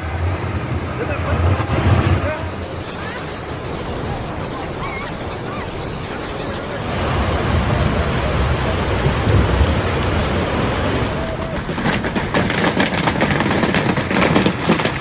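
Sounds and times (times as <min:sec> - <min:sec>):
heavy rain pouring: 0:00.0 - 0:15.0
hailstones hitting hard surfaces: 0:06.8 - 0:15.0.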